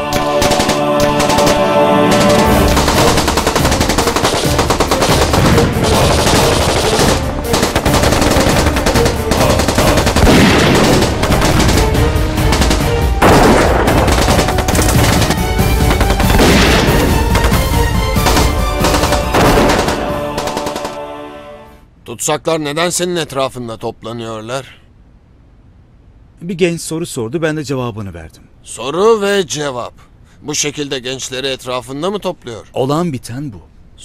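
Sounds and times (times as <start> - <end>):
background music: 0.0 - 21.9
automatic rifle gunfire: 0.2 - 21.0.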